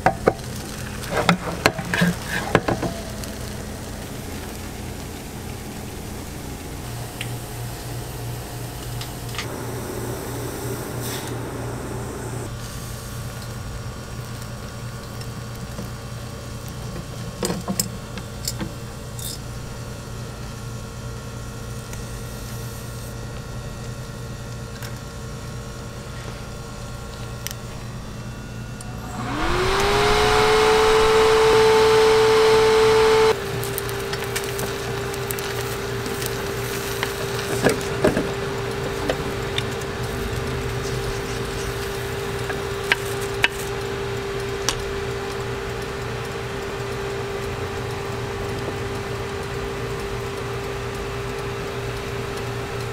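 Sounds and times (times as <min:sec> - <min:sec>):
cooling fan whine: 0:00.0 - 0:17.4, 0:18.0 - 0:52.9
low equipment hum: 0:00.6 - 0:12.8, 0:25.4 - 0:42.3
rush of air: 0:09.4 - 0:12.5, 0:28.9 - 0:33.2.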